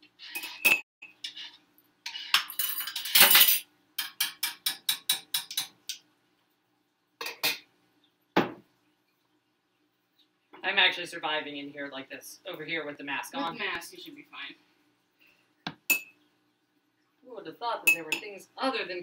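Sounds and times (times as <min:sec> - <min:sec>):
metal utensil scraping a saucepan: 0:00.0 - 0:03.2.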